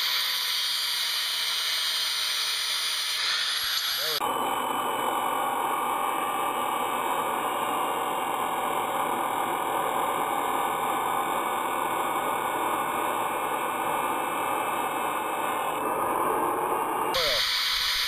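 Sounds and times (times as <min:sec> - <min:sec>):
grinding wheel hissing on steel: 0:00.0 - 0:06.6, 0:13.4 - 0:18.0.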